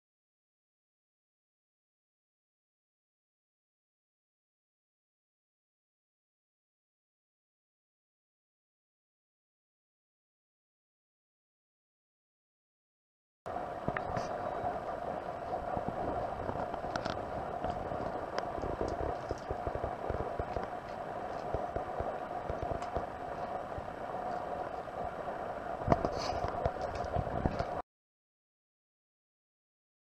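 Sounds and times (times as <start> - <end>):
steady hum: 13.5 - 27.8.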